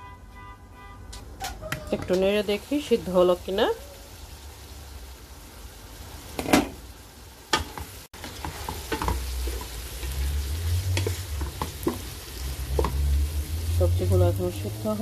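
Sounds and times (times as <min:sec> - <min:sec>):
light sizzling: 0:01.1 - 0:15.0
spatula scraping a pot: 0:08.2 - 0:12.1.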